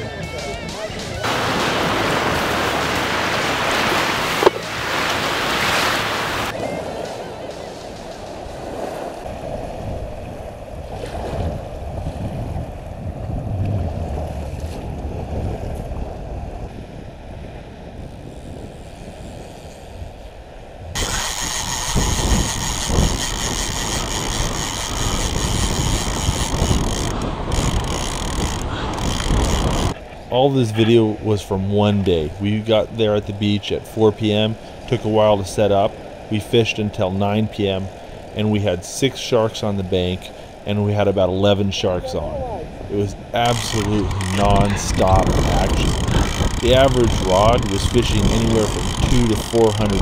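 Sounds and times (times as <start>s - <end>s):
water splashing: 0.0s - 12.2s, 41.4s - 50.0s
surf washing in shallows: 0.0s - 50.0s
fishing reel clicking and whirring: 18.1s - 20.3s, 21.0s - 30.0s, 43.4s - 50.0s.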